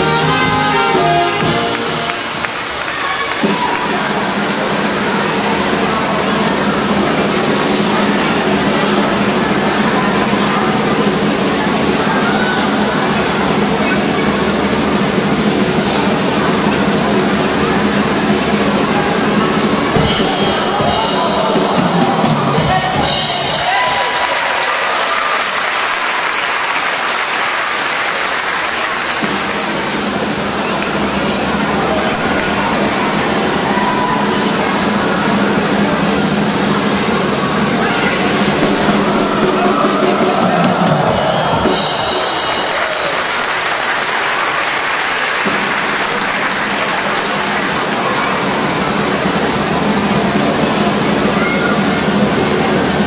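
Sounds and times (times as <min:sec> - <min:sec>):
audience applauding: 0:00.0 - 0:06.6, 0:19.9 - 0:35.2, 0:37.8 - 0:50.9
music: 0:00.0 - 0:24.8, 0:29.2 - 0:53.0.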